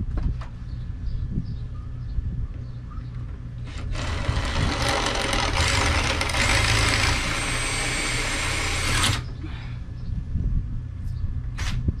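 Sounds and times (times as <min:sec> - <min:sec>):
cordless drill drilling: 0:03.7 - 0:09.3.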